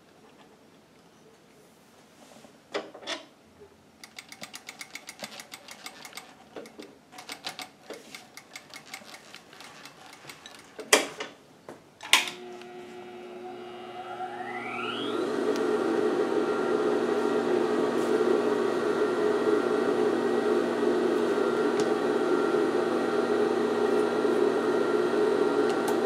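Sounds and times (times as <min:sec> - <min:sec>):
sewing machine clutch ticking: 0:04.0 - 0:10.9
electric motor humming and whining: 0:12.3 - 0:26.0.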